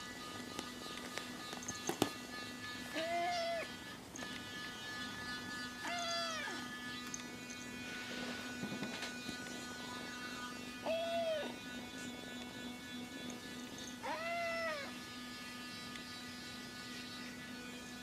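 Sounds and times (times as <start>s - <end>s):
kitten meowing: 3.0s - 3.7s, 5.8s - 6.6s, 10.8s - 11.5s, 14.0s - 14.9s.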